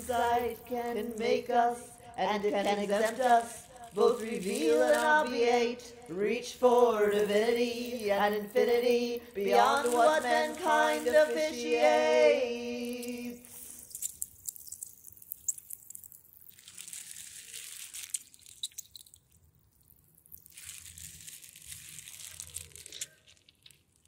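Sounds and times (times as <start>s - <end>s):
crunching and rustling handling noise: 0.0s - 5.4s, 6.7s - 11.4s, 13.4s - 24.0s
person singing a word: 0.0s - 13.6s.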